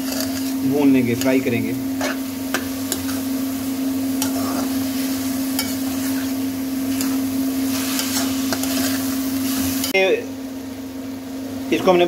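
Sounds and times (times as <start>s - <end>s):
metal spatula scraping pan: 0.0s - 0.6s, 1.2s - 3.3s, 4.2s - 9.9s
food sizzling in pan: 0.0s - 11.7s.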